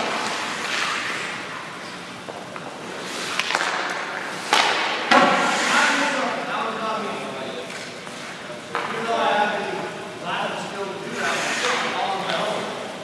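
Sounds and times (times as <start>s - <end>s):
skates scraping on ice: 0.0s - 6.2s, 11.1s - 12.8s.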